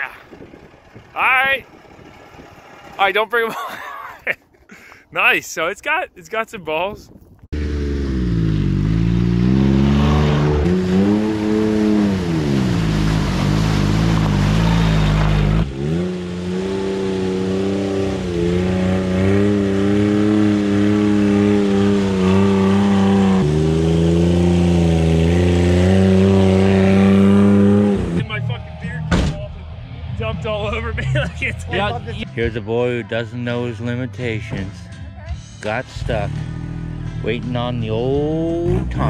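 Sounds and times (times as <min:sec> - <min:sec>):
small engine revving: 0:07.6 - 0:28.2.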